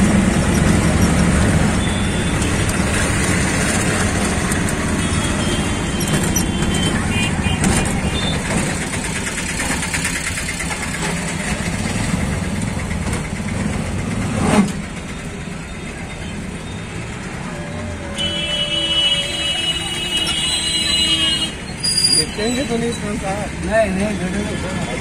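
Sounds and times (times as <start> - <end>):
rickshaw engine running: 0.0 - 25.0
road noise: 0.0 - 25.0.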